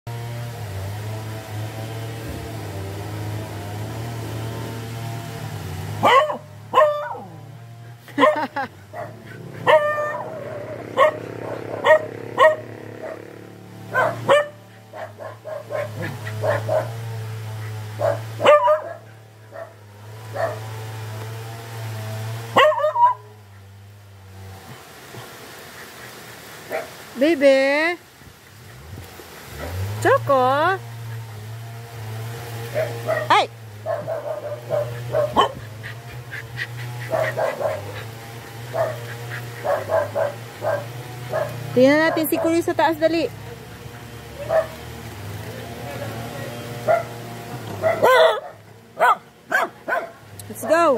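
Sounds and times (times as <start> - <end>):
dog barking: 6.0 - 7.4, 8.2 - 13.3, 13.9 - 17.2, 17.9 - 20.8, 22.5 - 23.3, 26.7 - 27.0, 32.7 - 35.9, 37.0 - 42.7, 44.3 - 45.0, 46.8 - 50.9.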